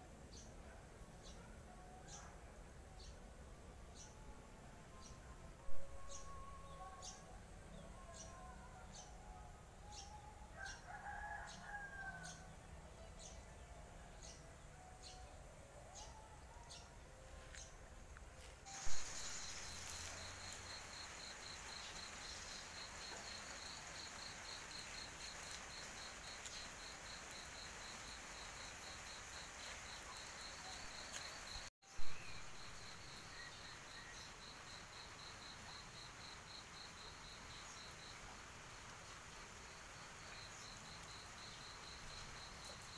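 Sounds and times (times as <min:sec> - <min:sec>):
steady high hiss: 0:17.3 - 0:42.9
insect chirping: 0:18.7 - 0:42.9.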